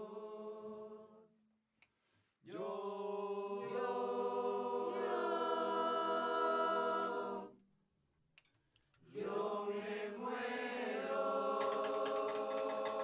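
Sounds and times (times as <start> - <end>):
choir singing held chord: 0.0 - 1.2, 2.5 - 7.6, 9.1 - 13.0.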